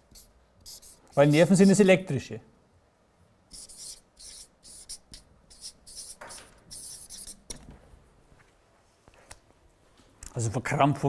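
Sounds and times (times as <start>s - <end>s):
marker pen scratching on paper: 0.0s - 1.9s, 3.5s - 7.6s.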